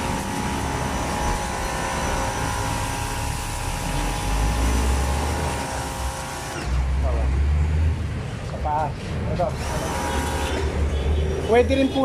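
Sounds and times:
pressure washer motor whine: 0.0 - 7.0, 9.6 - 10.8.

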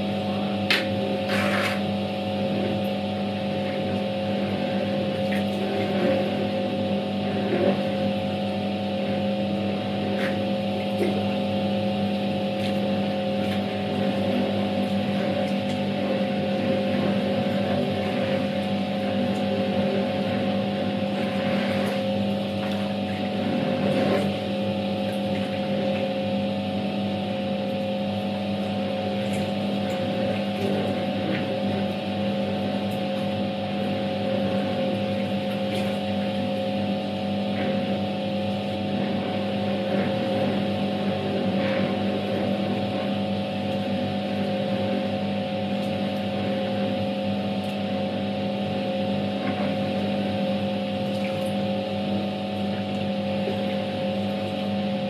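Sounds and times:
washing machine motor humming: 0.0 - 55.0
water and clothes swishing: 12.5 - 26.2, 33.0 - 36.6.

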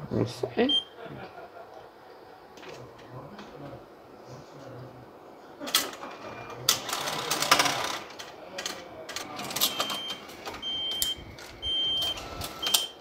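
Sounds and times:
machine whirring and clicking: 5.7 - 13.0.

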